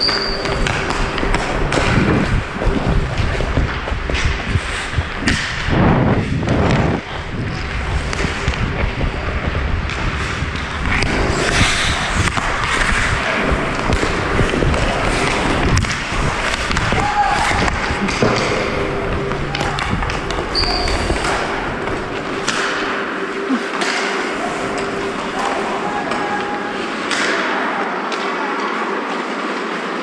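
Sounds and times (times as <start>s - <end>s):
sticks and pucks knocking: 0.0s - 5.7s, 9.8s - 27.5s
skates scraping on ice: 0.0s - 27.4s.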